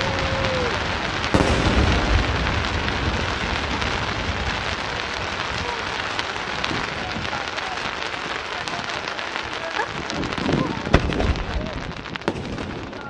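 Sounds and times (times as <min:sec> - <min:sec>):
firework crackling: 0:00.0 - 0:13.0
low firework burst rumble: 0:00.0 - 0:13.0.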